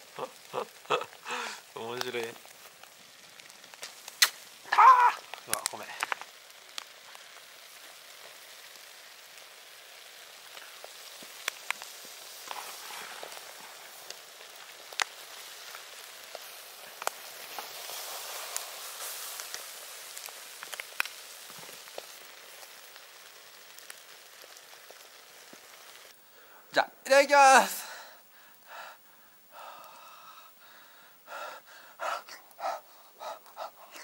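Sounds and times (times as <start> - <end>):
egg sizzling in a tin: 0.0 - 26.2
sharp pops and crackles: 0.0 - 26.8, 27.9 - 34.0.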